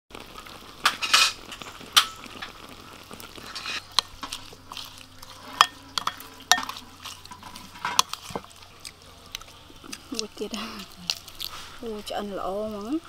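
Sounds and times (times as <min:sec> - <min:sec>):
metal spoon clinking on glass bowl: 0:05.5 - 0:08.4.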